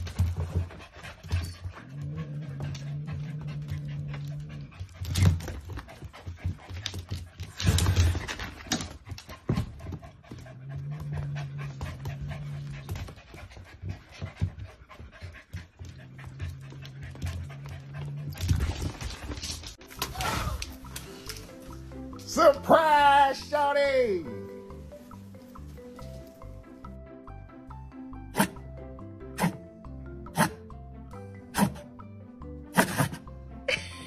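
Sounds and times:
dogs panting: 0:00.0 - 0:19.8
low dog growl: 0:01.7 - 0:04.9, 0:10.3 - 0:12.9.

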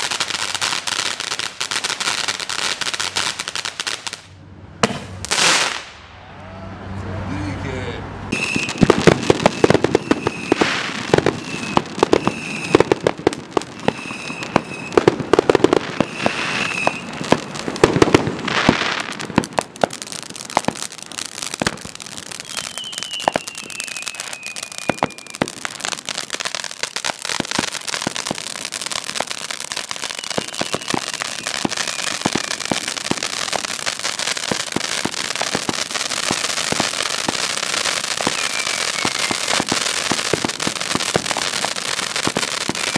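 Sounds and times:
fireworks crackling and popping: 0:00.0 - 0:06.0, 0:08.3 - 0:42.9
falling whistle: 0:10.0 - 0:10.7, 0:11.4 - 0:12.8, 0:13.8 - 0:15.0, 0:16.0 - 0:17.1, 0:22.4 - 0:25.4, 0:30.0 - 0:32.6, 0:38.2 - 0:39.7
short high whistles: 0:22.4 - 0:25.4, 0:30.2 - 0:32.5, 0:38.2 - 0:39.6.

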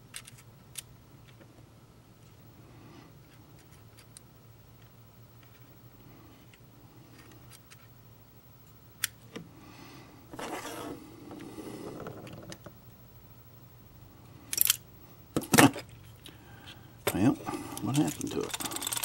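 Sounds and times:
hand tools clicking and rustling: 0:17.1 - 0:19.0.

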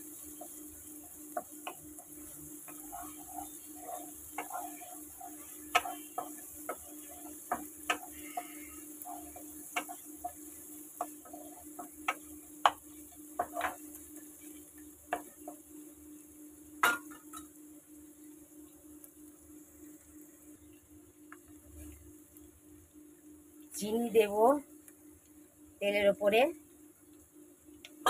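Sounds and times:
oil sizzling faintly: 0:00.0 - 0:28.0
spatula scraping a pan: 0:01.4 - 0:14.6
spatula knocking against pan: 0:05.7 - 0:12.8.

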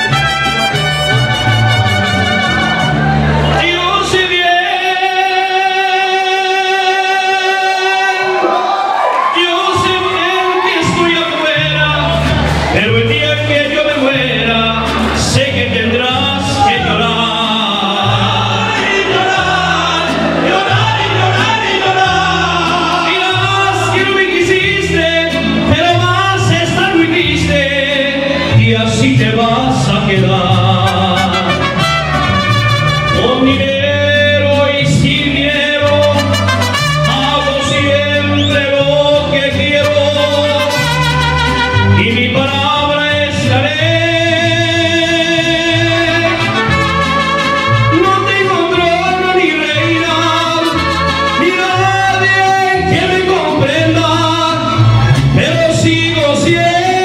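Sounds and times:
trumpets: 0:00.0 - 0:03.6, 0:30.8 - 0:33.6, 0:35.8 - 0:38.2, 0:39.7 - 0:42.4, 0:45.8 - 0:48.8, 0:49.8 - 0:52.4
bass line: 0:00.0 - 0:07.5, 0:09.2 - 0:57.0
mariachi band playing: 0:00.0 - 0:57.0.

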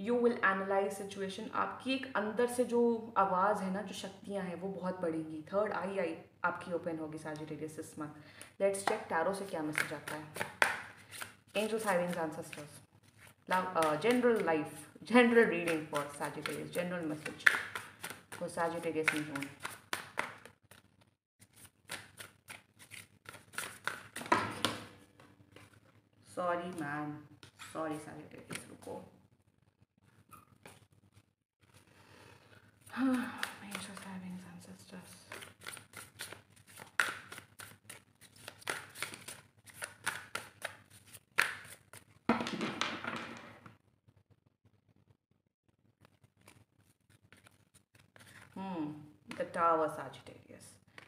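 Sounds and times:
cards being shuffled: 0:09.4 - 0:24.9, 0:33.0 - 0:34.2, 0:35.3 - 0:42.4, 0:46.0 - 0:48.6
cards sliding rustle: 0:10.4 - 0:13.4, 0:19.1 - 0:24.4, 0:35.3 - 0:42.1, 0:46.1 - 0:48.5.

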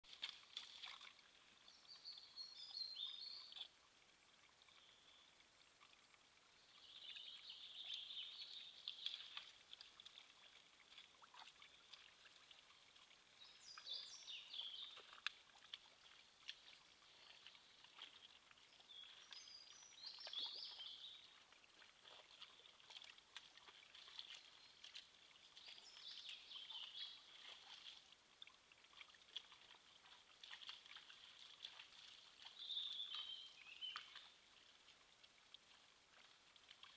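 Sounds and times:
faint birdsong chirping: 0:00.2 - 0:36.9
faint clicks: 0:15.0 - 0:18.1.

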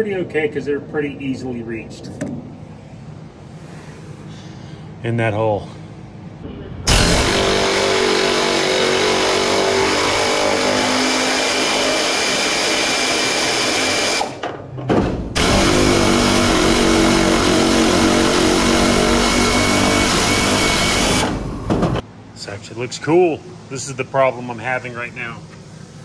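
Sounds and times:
power tool running: 0:06.9 - 0:14.4, 0:15.3 - 0:22.0.

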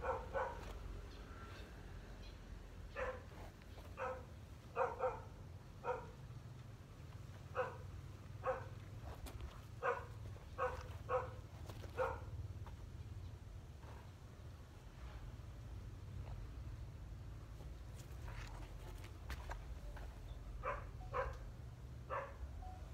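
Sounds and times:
dog barking: 0:00.0 - 0:00.7, 0:02.9 - 0:06.2, 0:07.5 - 0:08.8, 0:09.8 - 0:12.4, 0:20.6 - 0:21.4, 0:22.1 - 0:22.4.

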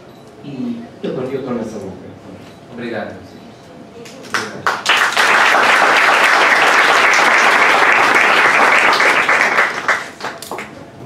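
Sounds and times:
audience applauding: 0:04.3 - 0:10.8.

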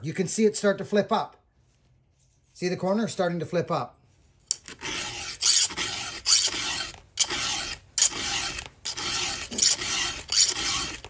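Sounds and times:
file rasping on chainsaw chain: 0:04.5 - 0:11.0.

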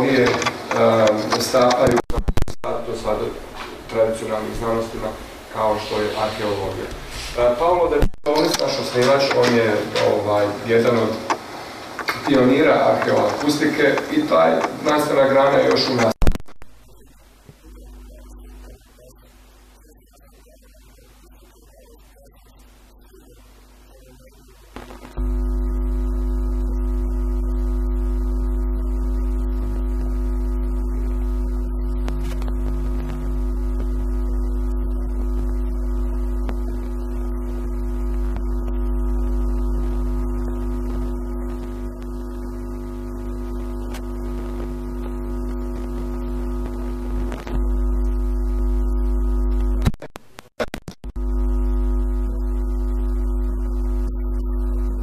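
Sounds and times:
loud steady hum: 0:00.0 - 0:55.0.

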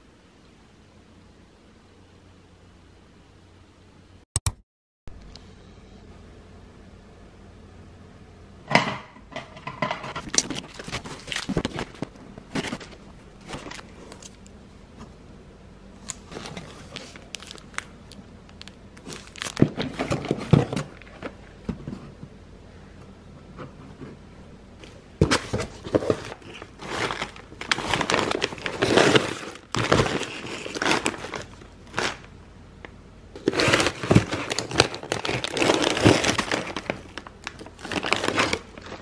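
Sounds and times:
food packaging crinkling: 0:10.0 - 0:14.5, 0:16.0 - 0:21.4, 0:24.8 - 0:32.4, 0:33.4 - 0:39.0.

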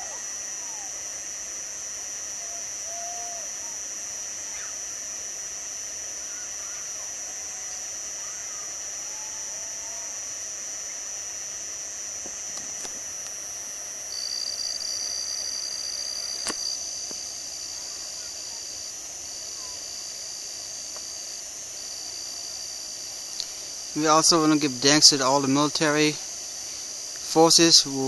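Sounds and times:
high-pitched drone: 0:12.8 - 0:26.3.

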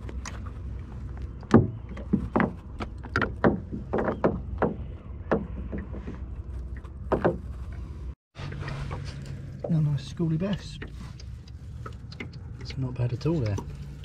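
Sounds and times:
knocks and thumps on a boat: 0:01.3 - 0:07.8.

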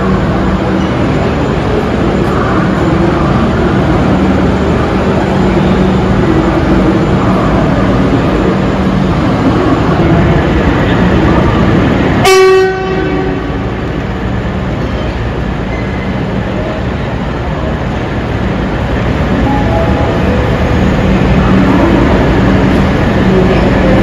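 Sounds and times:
trains rumbling: 0:00.0 - 0:24.0
train horn toot: 0:12.2 - 0:13.6.

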